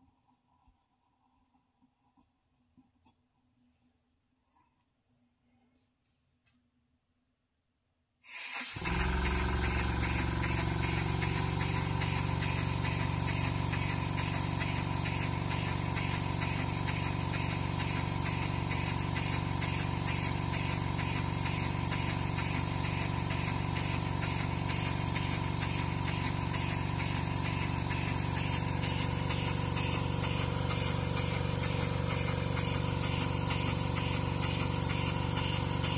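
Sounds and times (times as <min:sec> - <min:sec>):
steam engine exhaust hiss: 0:08.3 - 0:35.9.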